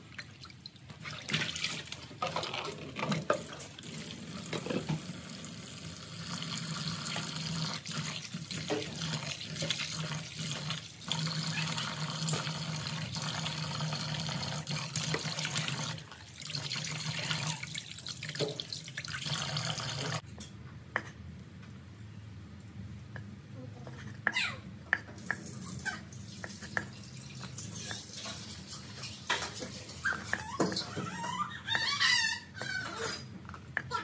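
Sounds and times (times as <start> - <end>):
tap running into basin: 6.3 - 20.2.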